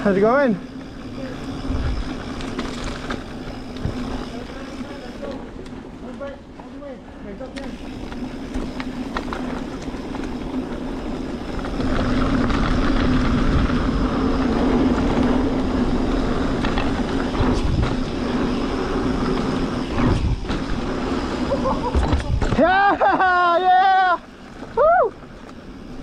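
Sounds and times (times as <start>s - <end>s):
bike tyre and wind rush: 0.0s - 26.0s
bike knocks and rattles: 7.6s - 18.4s, 19.0s - 23.2s.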